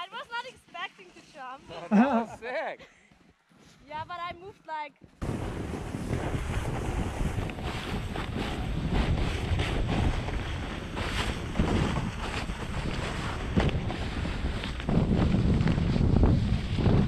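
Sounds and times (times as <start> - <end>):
snowboard scraping over snow: 5.2 - 17.0
wind buffeting microphone: 5.2 - 17.0.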